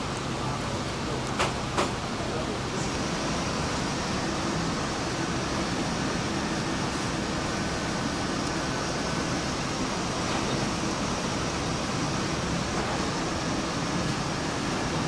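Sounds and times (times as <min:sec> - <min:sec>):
ventilation fan running: 0:00.0 - 0:15.0.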